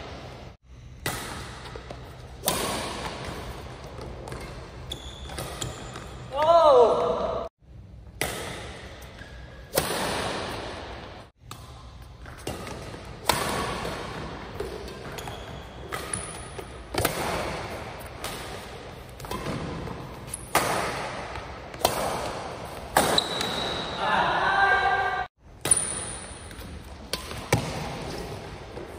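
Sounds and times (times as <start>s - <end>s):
rackets hitting shuttlecock: 1.0s - 7.1s, 8.0s - 24.0s, 25.5s - 28.9s
shoe squeaks: 4.2s - 6.3s, 14.9s - 16.4s, 23.0s - 24.0s.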